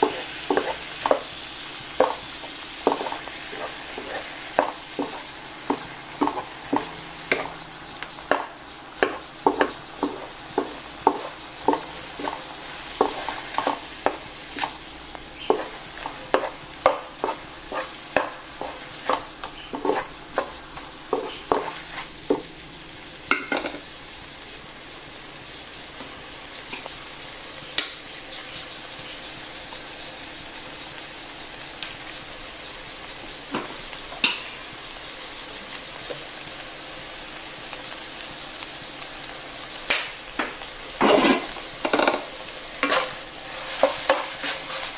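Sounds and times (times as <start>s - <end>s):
wooden spatula scraping in wok: 0.0s - 1.4s, 2.0s - 14.8s, 15.4s - 22.5s, 41.0s - 44.9s
food sizzling in water: 0.0s - 44.9s.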